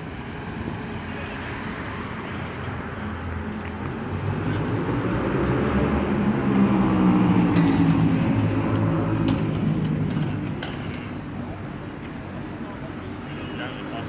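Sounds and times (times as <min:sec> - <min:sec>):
city traffic noise: 0:00.0 - 0:14.0
large vehicle engine passing: 0:01.0 - 0:11.8.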